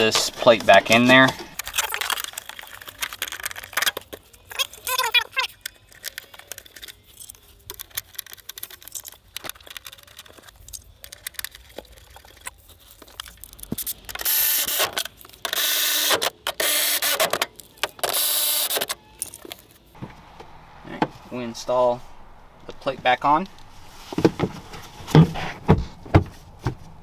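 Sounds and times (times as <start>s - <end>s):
electric ratchet whirring: 14.2s - 19.0s.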